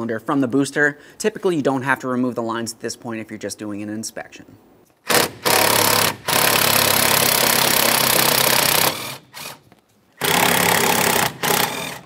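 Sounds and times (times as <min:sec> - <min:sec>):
power ratchet motor buzz: 0:05.1 - 0:09.6, 0:10.2 - 0:12.0.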